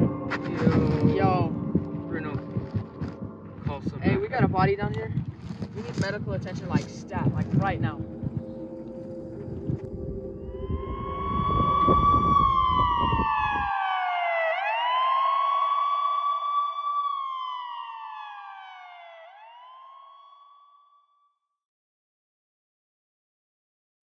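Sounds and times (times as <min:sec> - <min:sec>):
emergency vehicle siren wailing: 0:00.0 - 0:04.6, 0:06.0 - 0:20.8
wind noise: 0:00.0 - 0:14.2.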